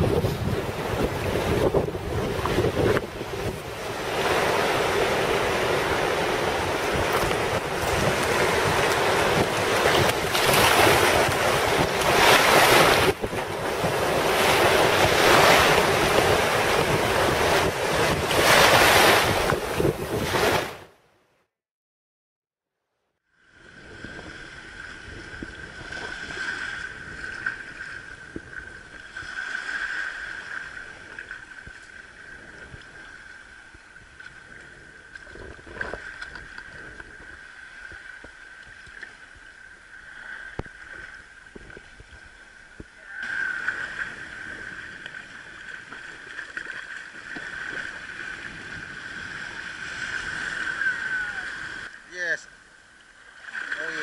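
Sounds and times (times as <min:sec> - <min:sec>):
sea water sloshing around legs: 0:04.2 - 0:19.6, 0:43.3 - 0:50.8.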